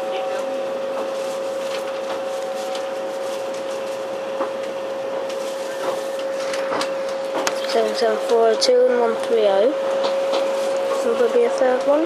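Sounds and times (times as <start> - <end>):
train cabin hum: 0.0 - 12.0.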